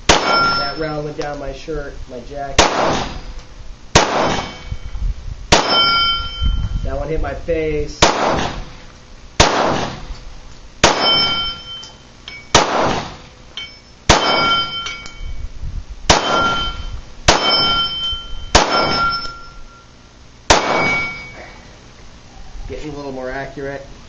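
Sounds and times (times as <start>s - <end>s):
pistol shots: 0.0s - 0.7s, 2.6s - 3.3s, 4.0s - 4.7s, 5.5s - 6.1s, 8.0s - 8.8s, 9.4s - 10.1s, 10.8s - 11.6s, 12.5s - 13.2s, 14.1s - 14.7s, 16.1s - 16.7s, 17.3s - 17.9s, 18.5s - 19.2s, 20.5s - 21.3s
steel gong target ringing: 0.1s - 1.0s, 5.6s - 6.9s, 10.9s - 12.6s, 13.6s - 15.4s, 16.2s - 19.9s, 20.6s - 21.4s.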